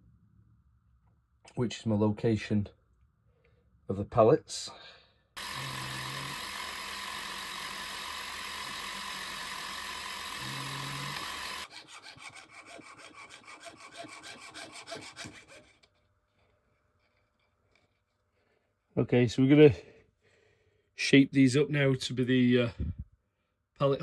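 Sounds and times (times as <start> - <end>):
milling machine drilling metal: 5.4 - 11.7
piercing saw cutting brass: 5.4 - 15.8.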